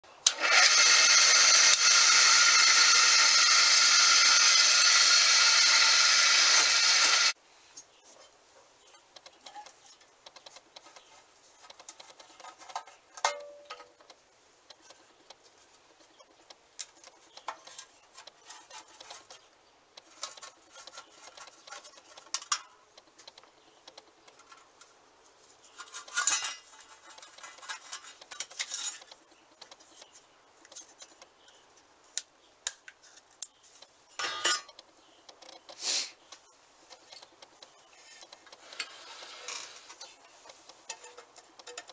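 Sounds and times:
metal parts clinking and scraping: 0:25.6 - 0:29.2, 0:34.1 - 0:34.8, 0:38.0 - 0:41.9.

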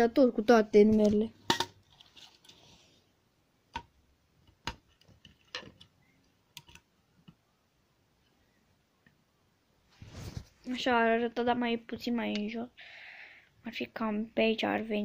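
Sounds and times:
handling clicks and knocks: 0:03.8 - 0:06.0
faint hiss: 0:12.5 - 0:13.7.

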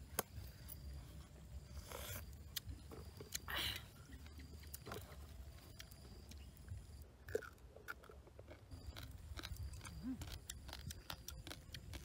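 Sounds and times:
faint chewing: 0:00.1 - 0:12.0.

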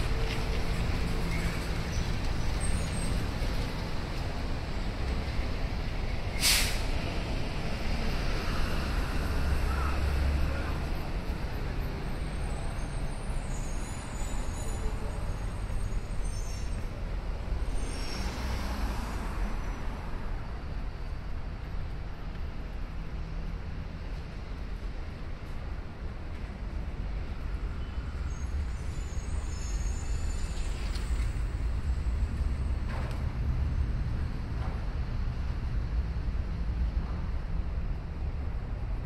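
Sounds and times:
low rumble of passing vehicles: 0:00.0 - 0:39.0
sharp brief hiss: 0:06.4 - 0:07.0.

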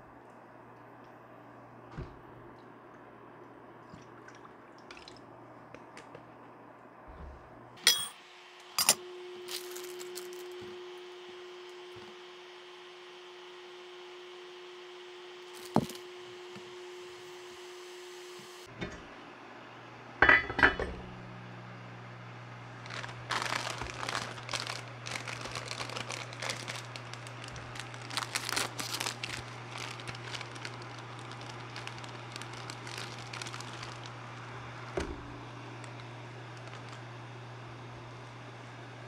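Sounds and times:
steady low hum: 0:00.0 - 0:39.0
crinkling and clattering: 0:22.8 - 0:37.0.

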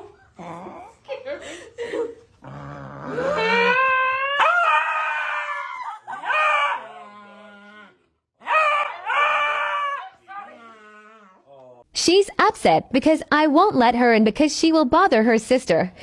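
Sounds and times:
dog howling: 0:02.5 - 0:11.4.

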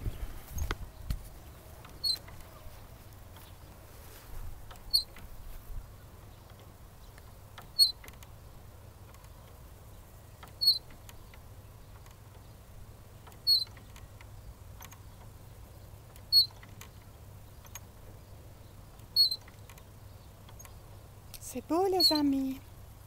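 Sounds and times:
swing squeaking: 0:01.5 - 0:03.6, 0:04.6 - 0:05.4, 0:07.3 - 0:08.3, 0:10.4 - 0:12.5, 0:13.1 - 0:15.4, 0:16.1 - 0:18.0, 0:18.8 - 0:21.0, 0:21.8 - 0:22.6
faint clicks: 0:06.2 - 0:08.4, 0:10.3 - 0:12.6, 0:13.2 - 0:15.4, 0:16.0 - 0:18.2, 0:18.9 - 0:21.4.

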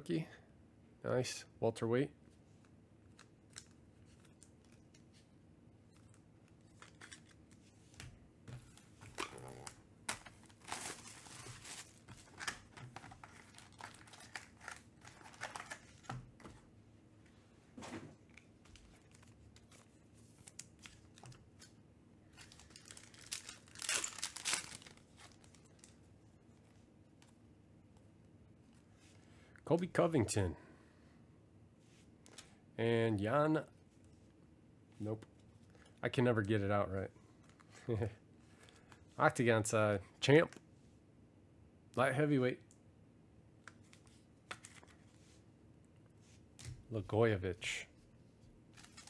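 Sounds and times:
cards being handled: 0:05.9 - 0:16.6, 0:43.6 - 0:45.4, 0:48.7 - 0:49.0
foil wrappers tearing and crinkling: 0:09.2 - 0:16.1, 0:22.4 - 0:26.0, 0:48.8 - 0:49.0.

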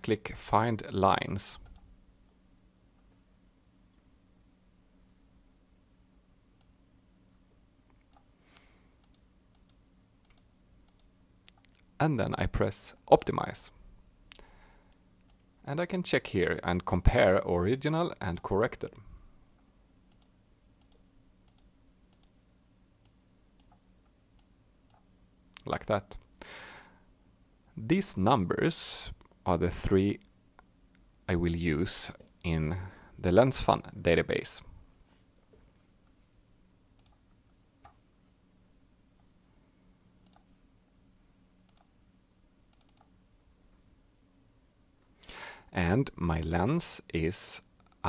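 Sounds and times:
low room hum: 0:00.0 - 0:48.0
faint computer clicks: 0:07.9 - 0:11.9, 0:20.1 - 0:22.4, 0:40.2 - 0:40.6, 0:41.7 - 0:41.9, 0:42.7 - 0:43.2.

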